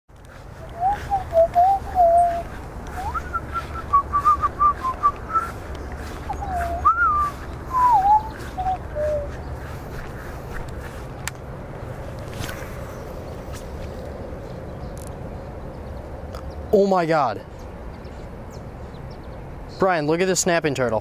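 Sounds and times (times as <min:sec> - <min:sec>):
low steady rumble: 0:00.1 - 0:19.7
person whistling a tune: 0:00.6 - 0:05.6, 0:06.3 - 0:09.3.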